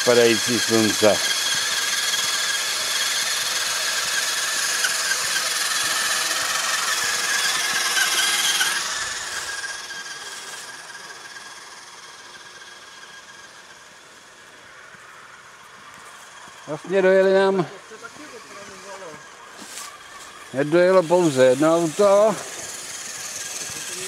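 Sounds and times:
toy car motor whining: 0:00.0 - 0:24.0.

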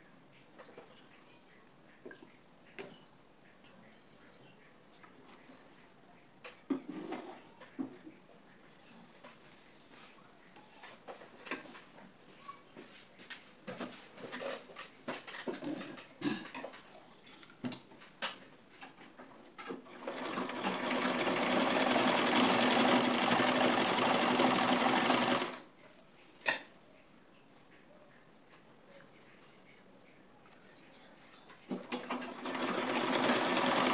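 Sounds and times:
sewing machine stitching: 0:19.8 - 0:25.6, 0:31.7 - 0:33.9.

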